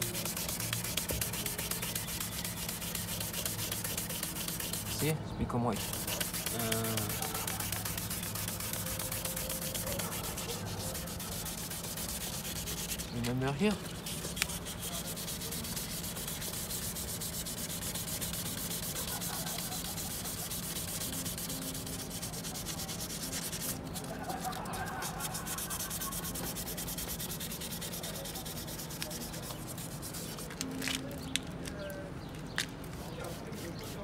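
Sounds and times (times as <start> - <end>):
sandpaper rubbing plastic: 0.0 - 31.1, 32.9 - 34.0.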